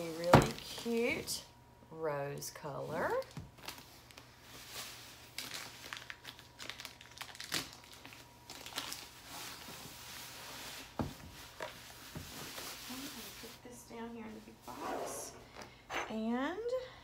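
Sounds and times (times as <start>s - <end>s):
plastic wrapping crinkling: 3.0s - 13.6s.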